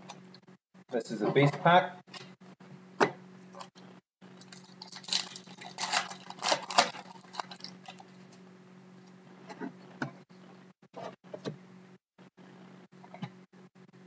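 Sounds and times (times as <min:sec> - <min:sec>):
foil wrapper tearing and crinkling: 0:04.4 - 0:08.1.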